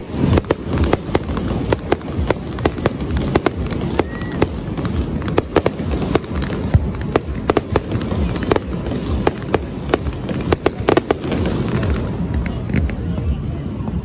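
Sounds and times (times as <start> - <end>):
fireworks bangs and pops: 0.0 - 14.0.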